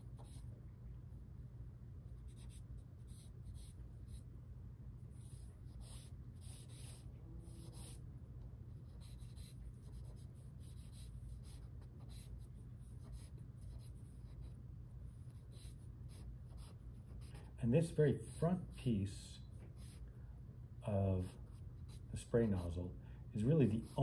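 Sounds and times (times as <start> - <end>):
pencil scratching on paper: 0.0 - 0.5, 2.1 - 4.3, 5.1 - 8.0, 8.7 - 18.8, 19.6 - 20.0, 21.2 - 22.8, 23.4 - 24.0
low room hum: 0.0 - 24.0.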